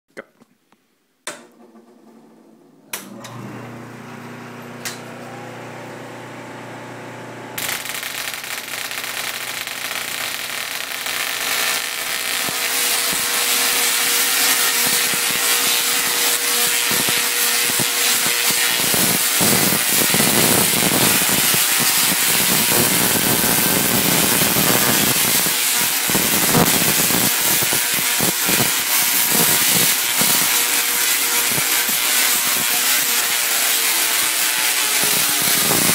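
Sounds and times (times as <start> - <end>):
tesla coil arcs crackling buzz: 7.5 - 35.9.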